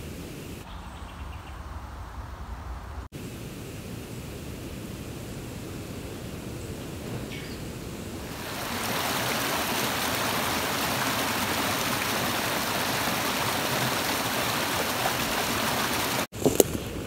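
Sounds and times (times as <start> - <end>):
creek water rushing: 8.0 - 16.3.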